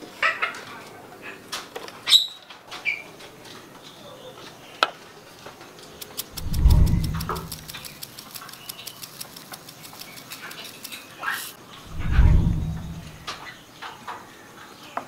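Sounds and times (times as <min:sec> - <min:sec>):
click: 0:06.0 - 0:11.0
sugar pouring into bowl: 0:06.0 - 0:11.1
deep thump: 0:11.9 - 0:13.4.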